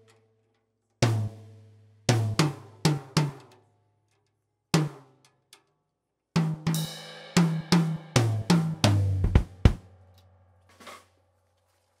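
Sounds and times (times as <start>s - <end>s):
drum fill: 7.4s - 9.9s
deep bass drum hits: 9.0s - 9.8s.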